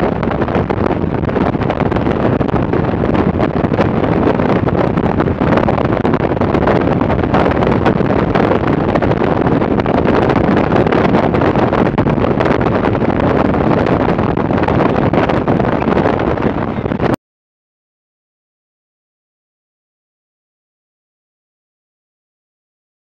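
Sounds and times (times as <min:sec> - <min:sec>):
wind buffeting microphone: 0:00.0 - 0:17.2.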